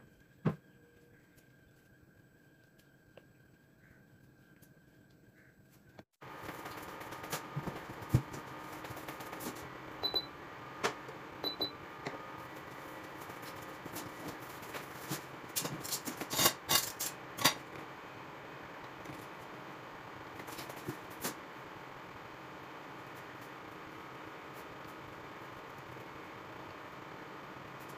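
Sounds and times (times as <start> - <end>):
cooktop buttons beeping: 10.0 - 10.3.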